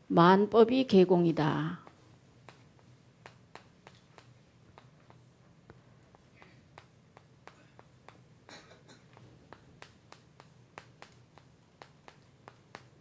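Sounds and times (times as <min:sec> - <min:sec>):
chalk tapping on chalkboard: 0:01.8 - 0:13.0
chalk scraping: 0:01.9 - 0:05.5, 0:06.1 - 0:08.4, 0:09.2 - 0:13.0.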